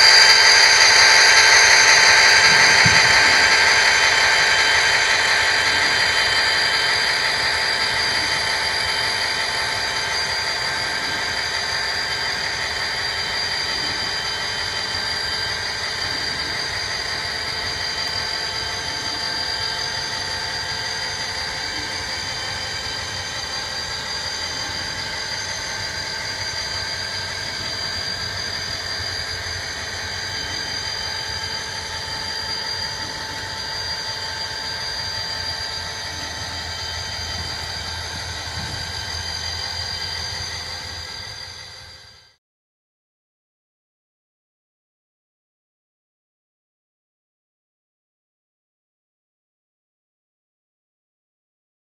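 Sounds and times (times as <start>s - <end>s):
diesel engine sound from speaker: 0.0s - 41.2s
model train cars rolling on track: 0.0s - 42.3s.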